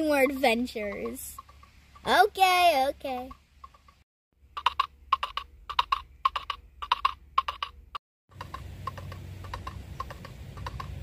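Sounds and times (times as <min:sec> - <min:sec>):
clip-clop hoofbeat clicks: 0:04.6 - 0:11.0.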